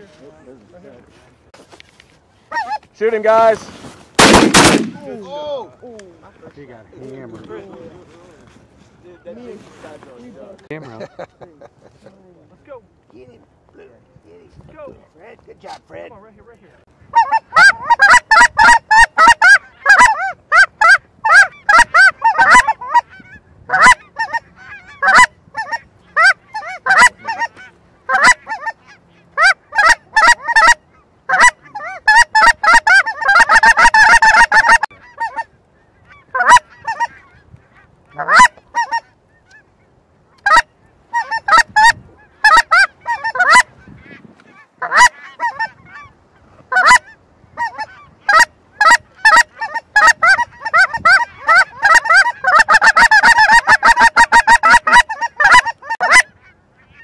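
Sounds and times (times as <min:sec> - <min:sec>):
geese honking: 0:02.4 - 0:05.2, 0:17.0 - 0:57.0.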